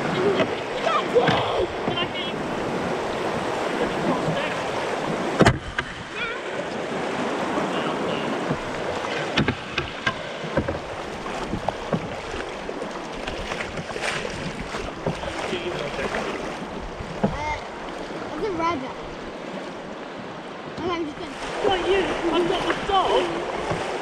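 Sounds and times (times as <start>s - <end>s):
paddle strokes splashing: 0.0s - 24.0s
rushing river water: 0.0s - 24.0s
sharp knocks on canoe: 0.2s - 6.3s, 8.2s - 18.1s, 22.3s - 24.0s.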